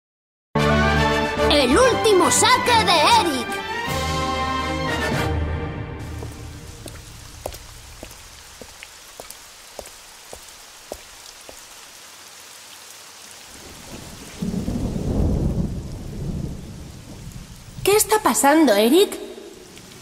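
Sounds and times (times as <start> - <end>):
steady rain: 6.0 - 20.0
low roll of thunder: 13.5 - 17.9.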